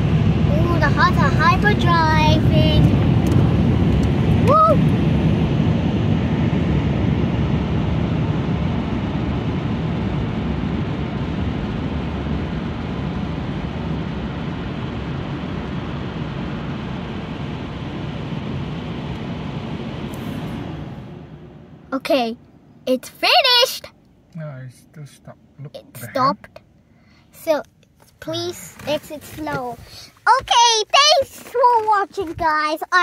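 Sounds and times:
car wash blower dryer: 0:00.0 - 0:21.8, 0:28.2 - 0:32.4.

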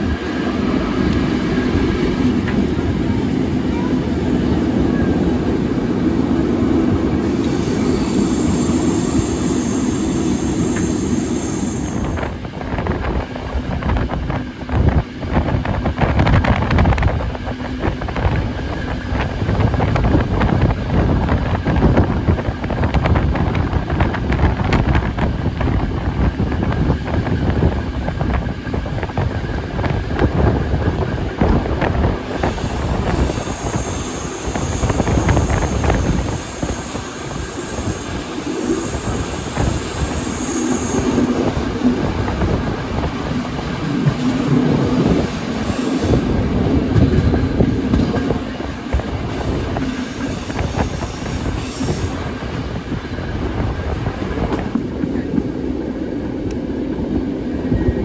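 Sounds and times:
train wheels clattering over rails: 0:07.0 - 0:55.6
high wheel squeal: 0:07.5 - 0:12.2, 0:32.4 - 0:41.2.

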